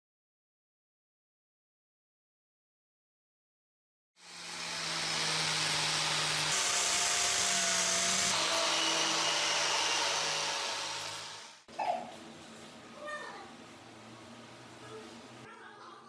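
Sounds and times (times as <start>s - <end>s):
angle grinder scouring metal: 4.2s - 11.7s.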